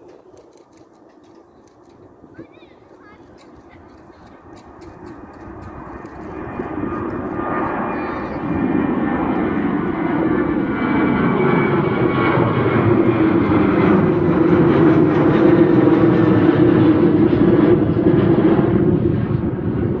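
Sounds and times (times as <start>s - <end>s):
jet engines rumbling in climb: 0.0s - 20.0s.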